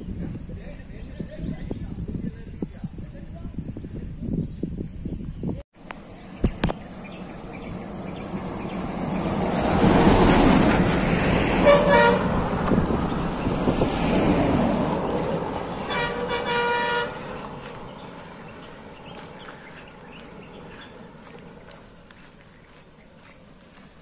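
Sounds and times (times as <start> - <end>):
vehicles passing: 5.8 - 24.0
vehicle horn toots: 11.6 - 12.4, 15.8 - 17.4.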